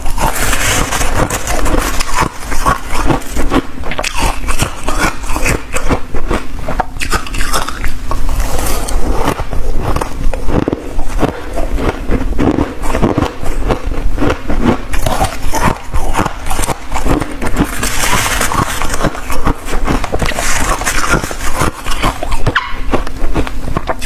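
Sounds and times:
metal spoon scraping frost: 0.0s - 5.9s
chewing crunchy frost: 0.0s - 24.0s.

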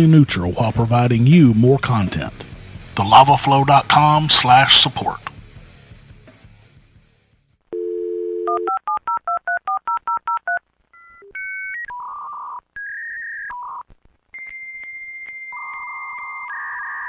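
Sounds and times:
telephone dial tone: 7.8s - 10.6s
touch-tone keypad dialling: 7.8s - 10.6s
electronic phone line beeps: 7.8s - 13.8s, 14.4s - 17.0s.

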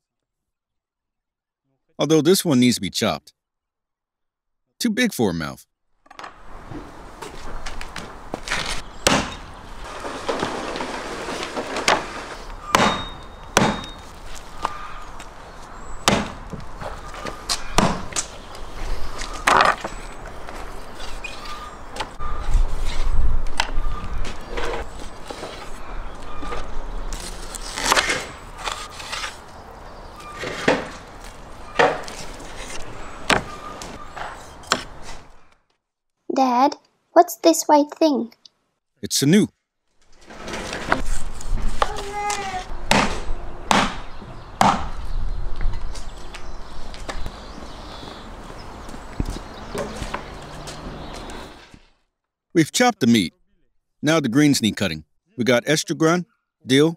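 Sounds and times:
blade chopping on wood: 8.5s - 9.4s, 12.7s - 14.0s, 16.0s - 16.4s, 42.9s - 44.9s.

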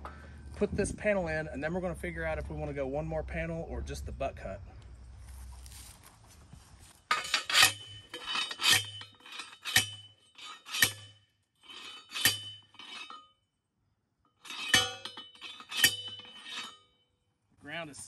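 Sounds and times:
metal post pounding clanks: 7.1s - 13.3s, 14.4s - 16.8s.

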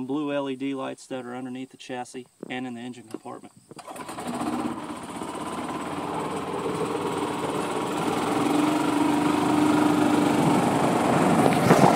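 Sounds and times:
golf cart engine running: 3.8s - 11.9s.

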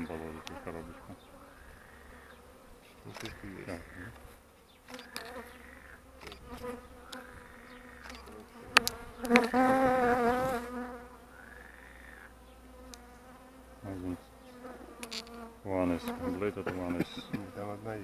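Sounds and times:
bees buzzing: 0.0s - 18.0s
sharp click: 3.1s - 3.4s, 4.9s - 5.3s, 6.2s - 7.2s, 8.0s - 9.5s.

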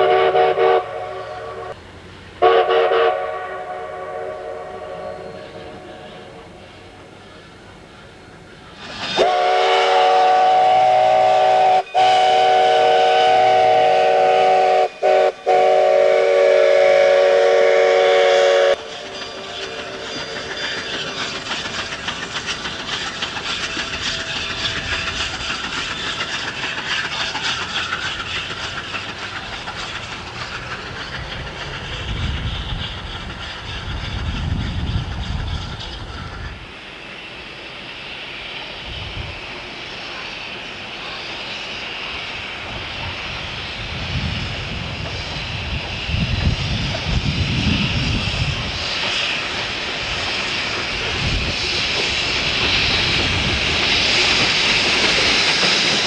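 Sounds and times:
steam locomotive whistle: 0.0s - 1.8s, 2.4s - 6.9s, 9.1s - 20.8s
steam locomotive chuffing: 0.0s - 56.0s.

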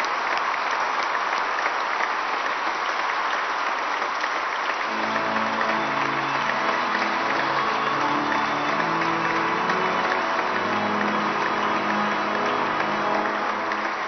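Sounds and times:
congregation applauding: 0.0s - 14.0s
held musical notes: 4.9s - 14.0s.

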